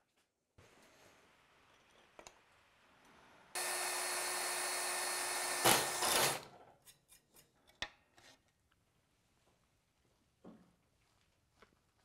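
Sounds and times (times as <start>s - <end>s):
cordless drill boring through metal: 3.6s - 6.4s.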